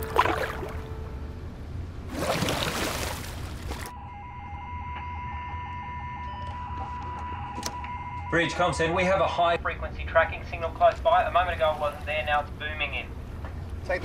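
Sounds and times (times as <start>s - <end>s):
low steady rumble: 0.0s - 4.6s, 7.7s - 14.0s.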